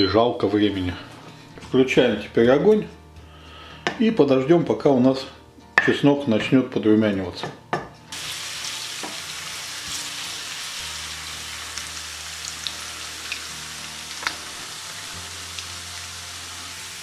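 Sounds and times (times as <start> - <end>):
garlic sizzling in oil: 8.1 - 17.0
oil crackling and popping: 8.2 - 15.8.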